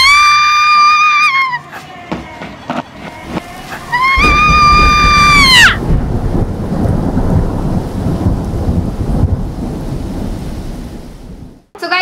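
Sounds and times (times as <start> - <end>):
high scream-like wail: 0.0 - 1.7, 3.7 - 5.9
heavy rumbling: 3.0 - 11.7.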